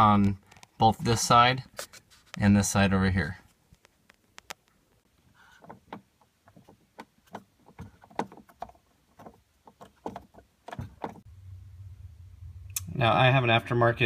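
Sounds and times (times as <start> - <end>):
low steady hum: 10.7 - 14.0.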